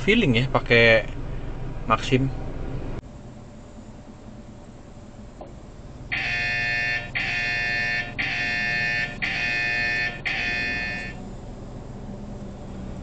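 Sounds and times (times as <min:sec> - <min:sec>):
phone alert electronic tones: 0:06.2 - 0:11.2.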